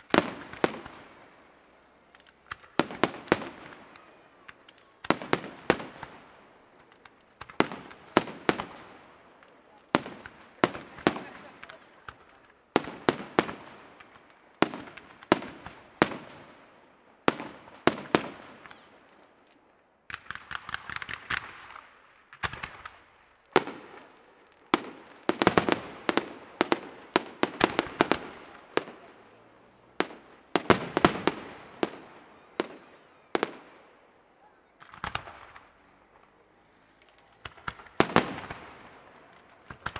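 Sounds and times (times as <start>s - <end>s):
firework crackle: 0.0s - 39.9s
firework shells bursting: 34.8s - 39.9s.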